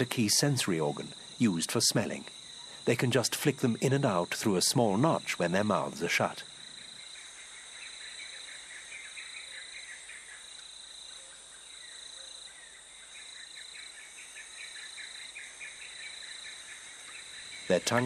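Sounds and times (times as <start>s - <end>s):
insect high-pitched trill: 0.0s - 18.0s
insects chirping: 0.0s - 18.0s.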